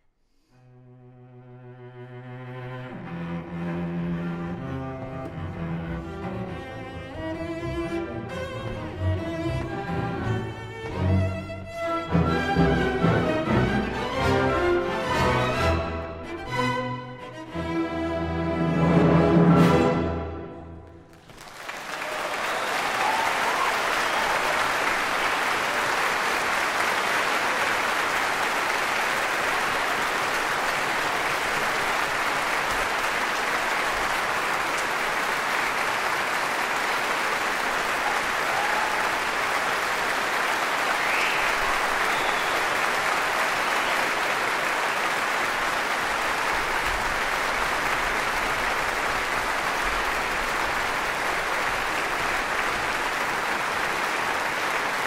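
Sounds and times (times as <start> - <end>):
audience applauding: 21.1 - 55.0.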